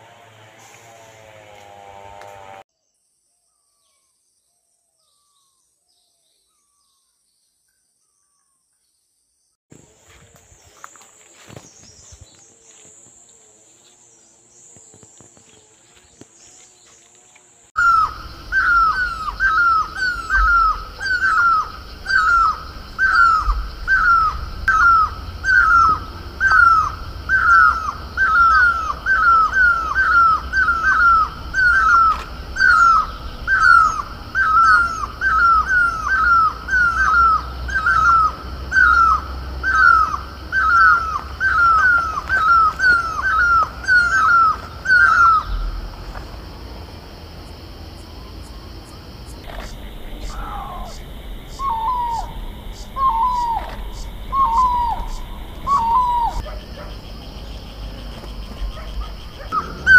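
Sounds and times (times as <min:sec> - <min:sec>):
parakeet calling: 0:17.8 - 0:45.9, 0:49.5 - 0:56.6, 0:58.7 - 0:59.9
low steady rumble: 0:44.7 - 0:56.4.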